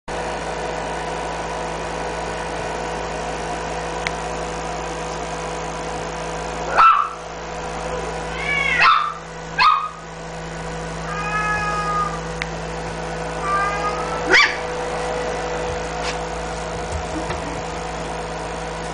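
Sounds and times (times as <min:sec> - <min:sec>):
steady hum: 0:00.1 - 0:18.9
puppy yipping: 0:06.7 - 0:07.2, 0:08.6 - 0:10.0, 0:13.6 - 0:14.6
puppy whining: 0:11.1 - 0:12.3, 0:13.4 - 0:14.7.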